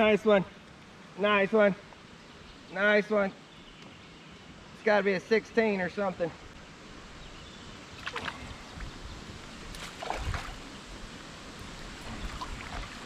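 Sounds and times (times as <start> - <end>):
river water lapping on kayak: 7.9 - 13.0.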